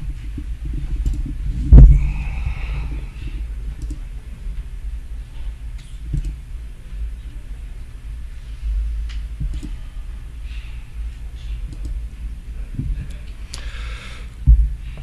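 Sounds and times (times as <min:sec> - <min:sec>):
low room rumble: 0:00.0 - 0:15.0
faint clicks: 0:03.7 - 0:04.1, 0:09.0 - 0:09.8, 0:11.4 - 0:12.0.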